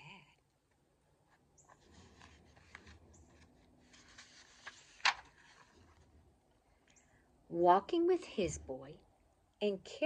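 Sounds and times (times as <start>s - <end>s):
paper pages rustling: 1.2s - 6.3s
page snapping: 4.1s - 5.6s.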